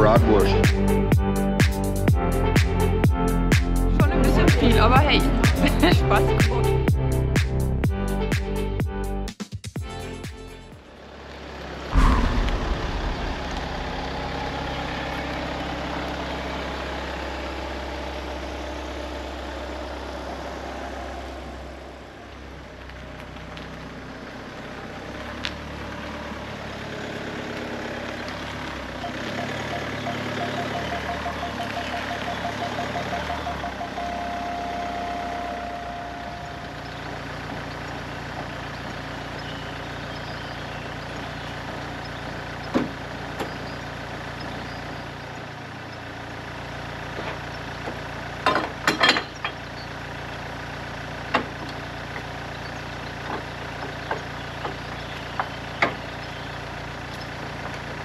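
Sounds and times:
car engine idling: 0.0 - 8.8, 10.0 - 58.0
loud thump: 12.0 - 15.4
parking sensor beeping: 29.0 - 37.0.

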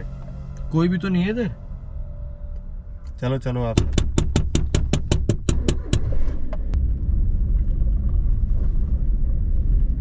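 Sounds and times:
car interior rumble: 0.0 - 10.0.

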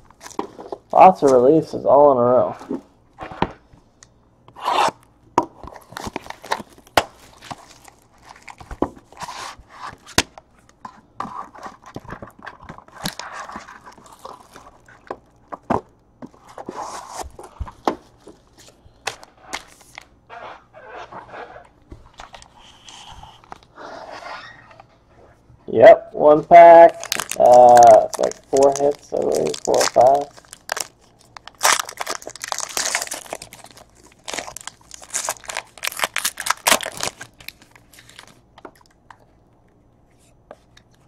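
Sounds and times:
plastic wrap crinkling and tearing: 5.8 - 9.2, 11.8 - 15.5, 26.5 - 39.0
card packs clicking and tapping: 26.9 - 37.6.

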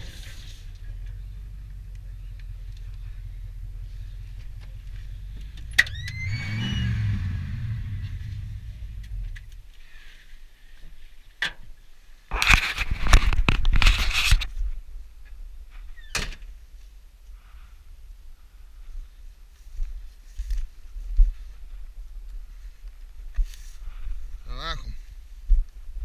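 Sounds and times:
pickup engine running and revving: 0.6 - 9.6.

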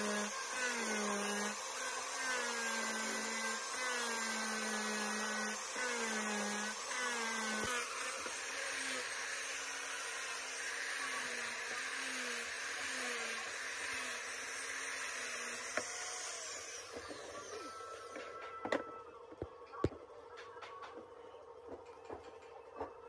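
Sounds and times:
angle grinder sanding wood: 0.0 - 18.3.

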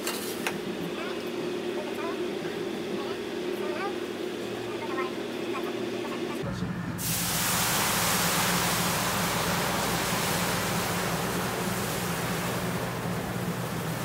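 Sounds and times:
steady low hum: 0.6 - 14.0
water sizzling on hot griddle: 7.0 - 14.0.

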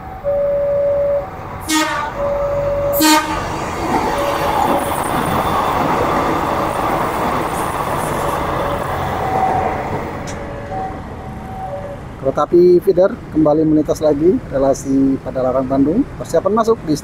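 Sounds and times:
train rolling past: 0.0 - 15.6
train horn toot: 1.6 - 5.0.

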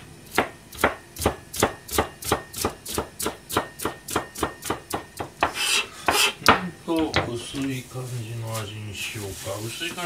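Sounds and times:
knife chopping on cutting board: 0.3 - 7.3.

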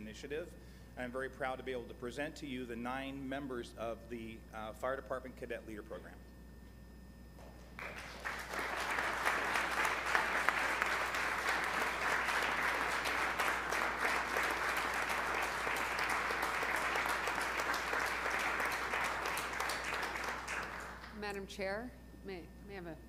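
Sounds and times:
audience applauding: 7.8 - 21.2.

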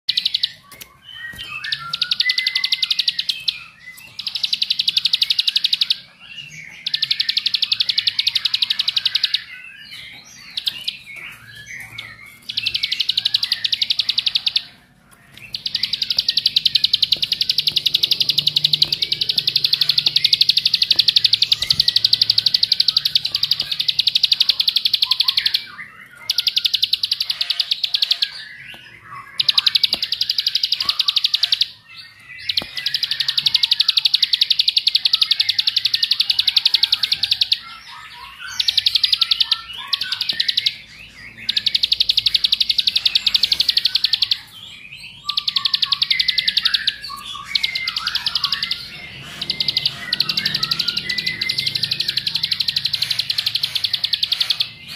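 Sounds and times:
bird singing fast buzzing trill: 15.5 - 25.7.

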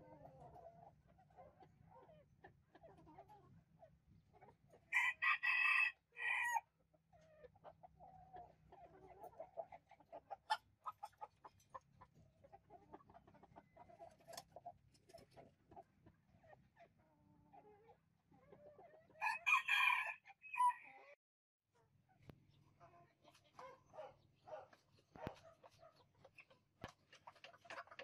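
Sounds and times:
rooster crowing: 4.9 - 6.6, 19.2 - 20.9.

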